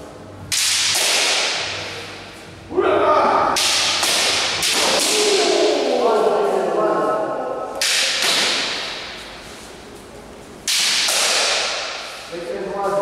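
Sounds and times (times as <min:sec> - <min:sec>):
bamboo sword striking armour: 0:00.5 - 0:01.6, 0:03.6 - 0:05.4, 0:07.8 - 0:09.2, 0:10.7 - 0:12.1.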